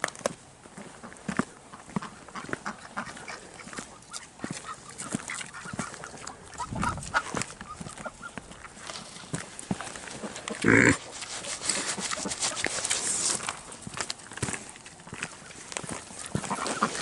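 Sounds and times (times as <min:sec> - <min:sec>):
animals crunching feed: 0:00.0 - 0:17.0
short low animal call: 0:10.6 - 0:11.0.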